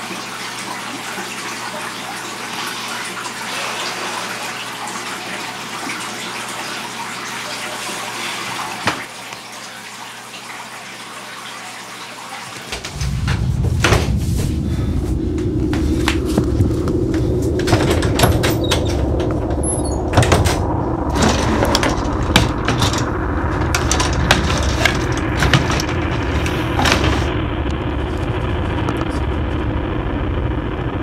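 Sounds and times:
steady rushing noise: 0:12.7 - 0:31.0
loud low rumble: 0:12.8 - 0:31.0.

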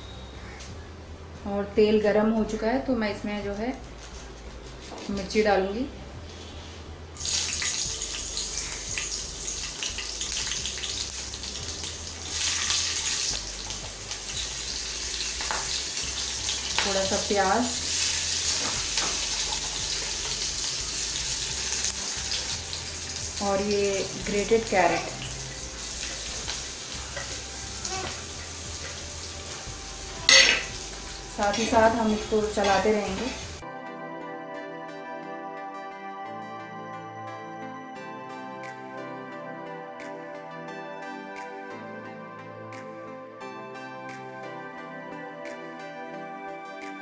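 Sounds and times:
chillies sizzling in hot oil: 0:07.2 - 0:33.6.

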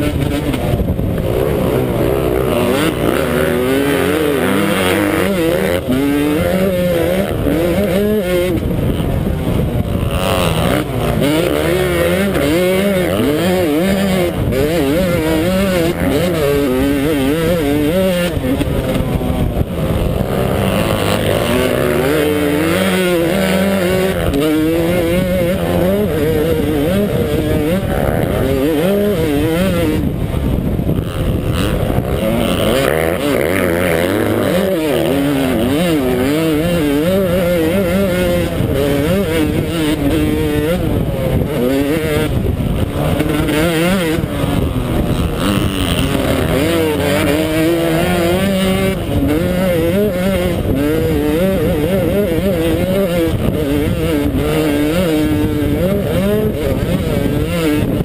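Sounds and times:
motocross engine revving: 0:00.0 - 0:58.0.

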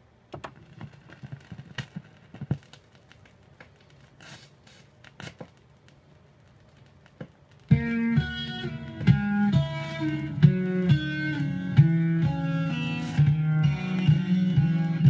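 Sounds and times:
vinyl surface crackles and pops: 0:00.0 - 0:15.0
slowed music: 0:07.7 - 0:15.0.

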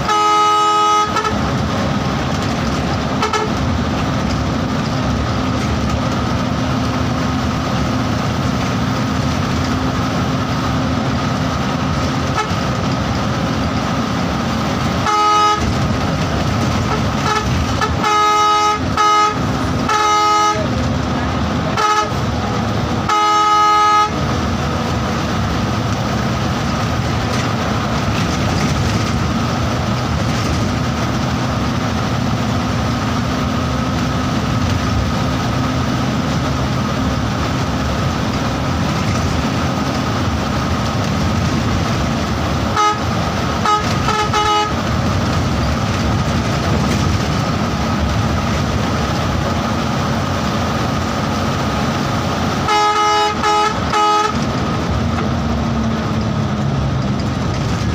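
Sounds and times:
vehicle horn honking: 0:00.0 - 0:01.5, 0:03.2 - 0:03.6, 0:12.3 - 0:12.6, 0:15.0 - 0:15.8, 0:16.9 - 0:20.8, 0:21.7 - 0:22.2, 0:23.0 - 0:24.3, 0:42.7 - 0:44.9, 0:52.6 - 0:54.5
bus engine and road noise: 0:00.0 - 0:57.9.

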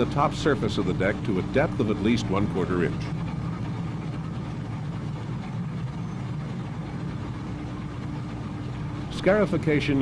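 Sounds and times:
faint constant hum: 0:00.0 - 0:10.0
milling machine drone: 0:00.0 - 0:10.0.

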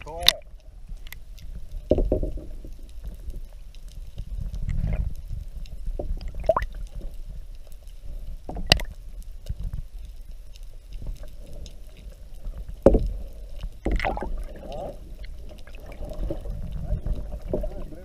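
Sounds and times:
muffled underwater sloshing: 0:00.0 - 0:18.0
bubbling chirp: 0:06.4 - 0:06.7.

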